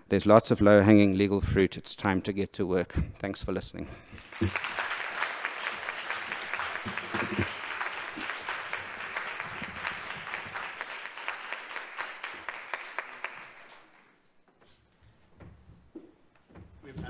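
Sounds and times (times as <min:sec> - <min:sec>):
audience applauding: 0:04.2 - 0:14.2.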